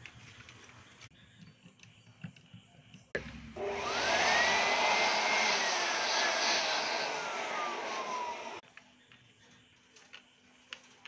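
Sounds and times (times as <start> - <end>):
electric blower whining rush: 3.6 - 8.6.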